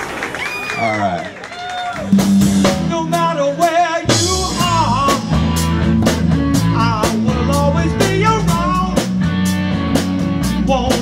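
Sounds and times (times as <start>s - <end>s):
live rock band: 0.0s - 11.0s
drums striking: 2.0s - 11.0s
man singing: 2.6s - 9.2s, 10.4s - 11.0s.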